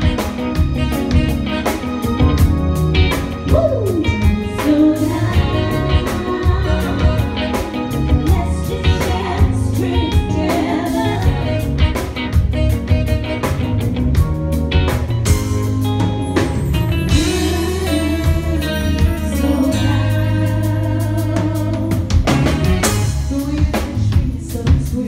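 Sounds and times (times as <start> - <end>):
drum kit: 0.0 - 25.0
electric guitar: 0.0 - 25.0
saxophone: 0.0 - 25.0
person singing: 3.5 - 12.1, 17.1 - 25.0.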